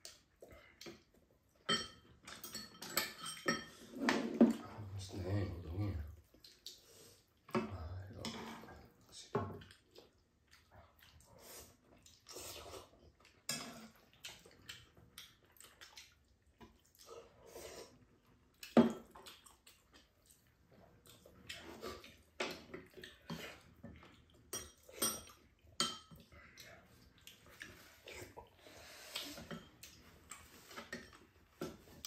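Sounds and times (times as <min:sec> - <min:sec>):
utensils clinking on bowls: 0:01.6 - 0:04.4, 0:24.5 - 0:26.2
slurping and chewing: 0:06.2 - 0:07.5, 0:08.1 - 0:32.0.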